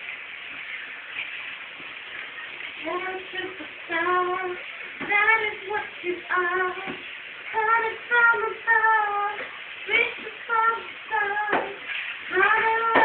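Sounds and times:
woman singing: 2.8 - 13.0.

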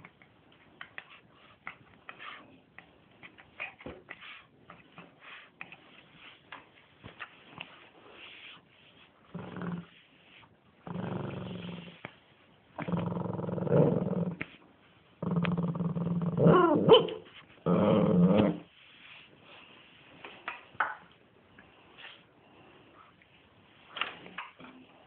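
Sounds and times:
dog growling: 9.3 - 9.9, 10.8 - 12.0, 12.8 - 14.4, 15.2 - 17.0, 17.6 - 18.7.

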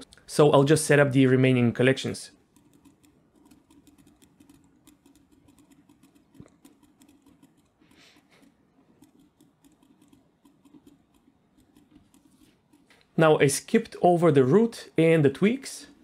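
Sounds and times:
faint low hum: 0.0 - 16.0
computer mouse clicks: 2.4 - 13.1.

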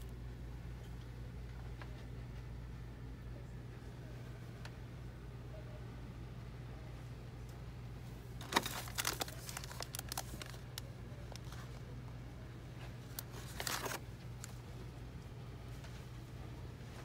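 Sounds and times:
low steady hum: 0.0 - 17.0
plastic packaging crinkling: 8.4 - 11.7, 13.1 - 14.6.

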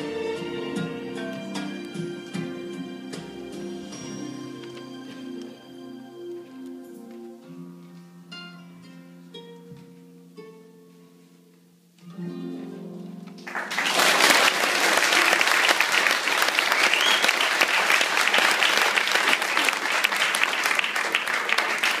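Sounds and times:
music: 0.0 - 13.7
audience applauding: 13.4 - 22.0.

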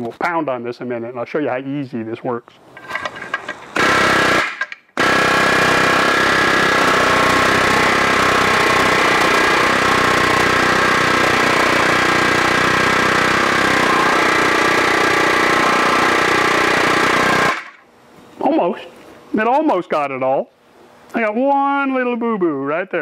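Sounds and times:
air hammer pounding steel: 3.6 - 17.8.

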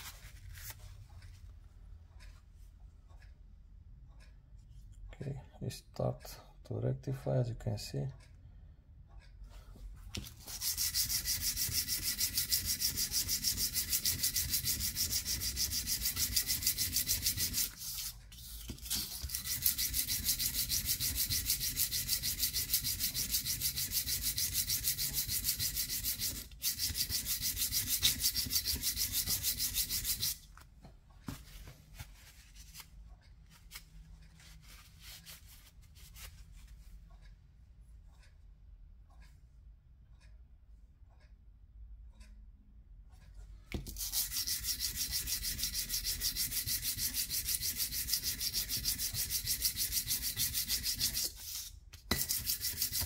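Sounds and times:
metal rasping on sandpaper: 10.3 - 30.4, 43.9 - 53.0.

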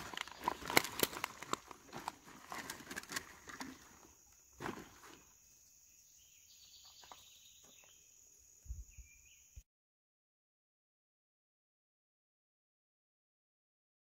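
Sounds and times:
bottle and ice rustling: 0.0 - 5.2
cooler bag rustling: 0.0 - 5.3
night insects chirring: 0.0 - 9.6.

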